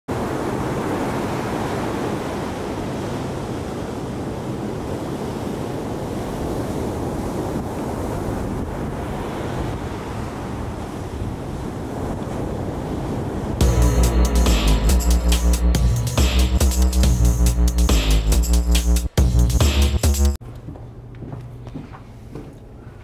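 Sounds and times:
waves breaking on shore: 0.1 - 13.6
wind on microphone: 2.4 - 13.6.

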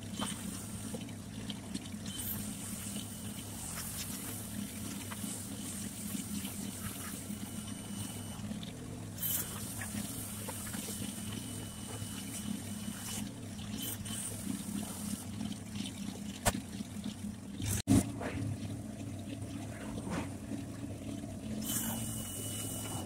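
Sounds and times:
low hum: 0.0 - 23.0.

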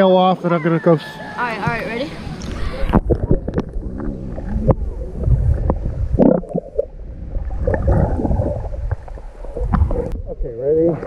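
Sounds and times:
underwater rumble: 1.6 - 11.0
bubbly gurgles: 2.4 - 11.0.

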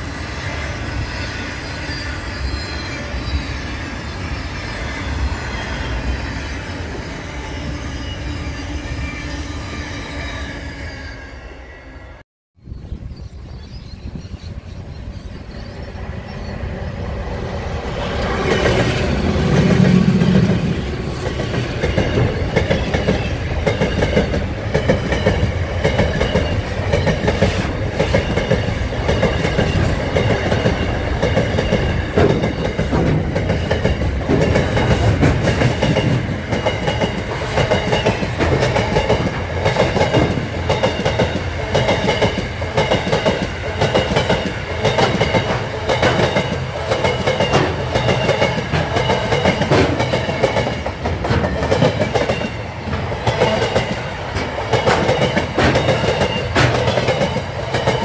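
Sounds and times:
train wheels on rails: 14.1 - 58.0
wheels clacking over rail joints: 17.9 - 58.0.

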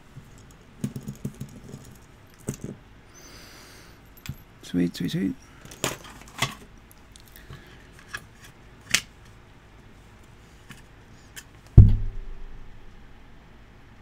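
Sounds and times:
heavy thump on bench: 11.8 - 12.7.

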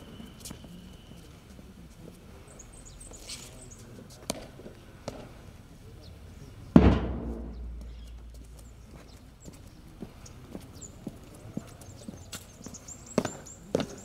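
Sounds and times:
loud sudden bang: 6.8 - 8.2.

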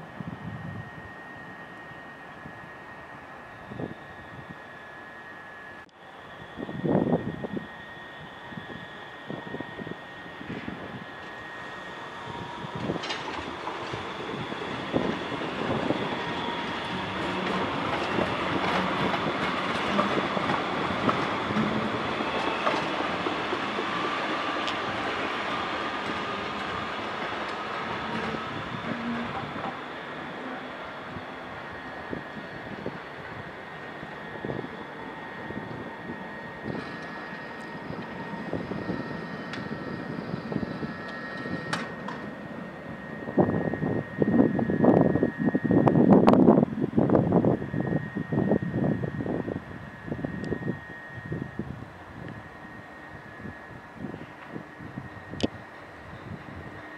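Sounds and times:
thin high whine: 0.0 - 56.9
tram wheels rolling on rails: 0.0 - 56.9
wheels clicking over rail joints: 12.8 - 14.1, 15.8 - 25.2, 26.0 - 30.6, 36.6 - 42.6.

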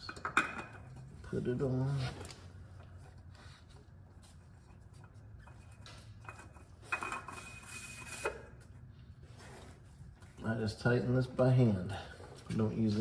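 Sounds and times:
oil filter scraping: 2.9 - 10.4.

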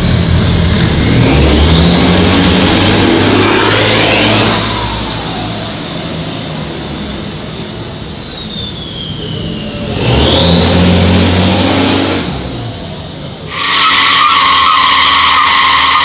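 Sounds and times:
car engine accelerating past: 0.0 - 7.6, 9.5 - 14.2
high whine falling in pitch: 0.0 - 16.0.

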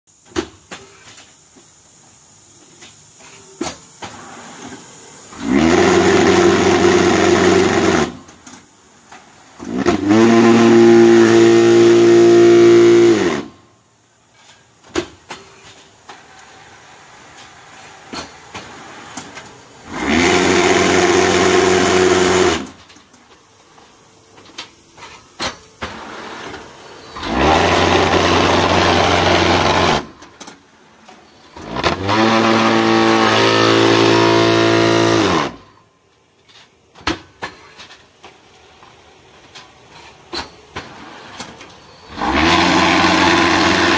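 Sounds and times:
vibration motor humming: 27.2 - 30.1, 42.2 - 43.9.

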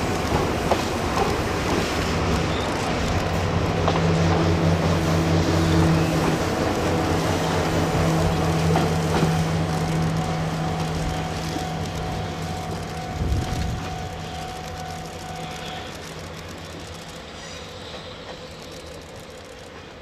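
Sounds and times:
diesel train engine humming: 0.0 - 20.0.

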